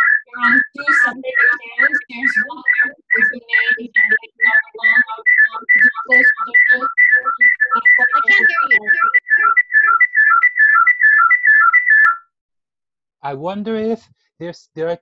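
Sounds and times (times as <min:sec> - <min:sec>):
garbled voice: 0:00.0 - 0:10.0
whistling feedback chirps: 0:00.0 - 0:12.3.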